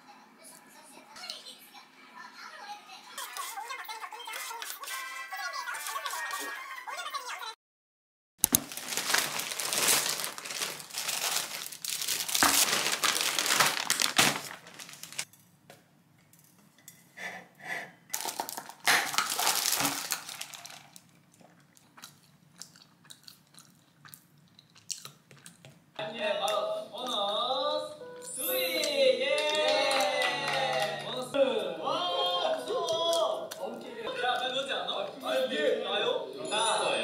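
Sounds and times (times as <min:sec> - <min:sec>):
plastic bag crinkling: 0:08.4 - 0:15.3, 0:18.1 - 0:21.4.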